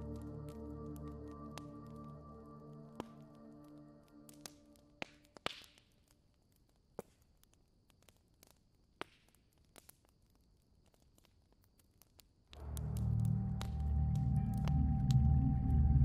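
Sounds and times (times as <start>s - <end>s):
background music: 0.0s - 5.1s, 12.6s - 16.0s.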